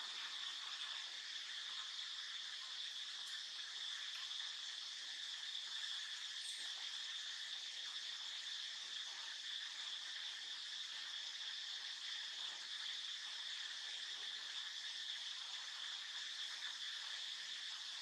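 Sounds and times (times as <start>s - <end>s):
insects chirring: 0.1s - 7.6s.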